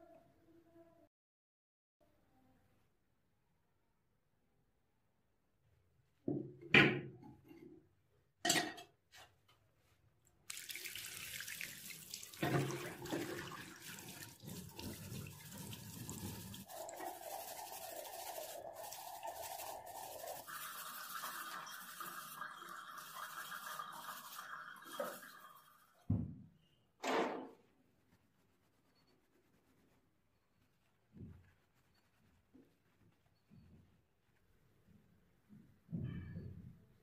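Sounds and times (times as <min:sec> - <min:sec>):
tap water running: 0:10.4 - 0:26.2
stiff brush scrubbing metal: 0:12.4 - 0:25.2.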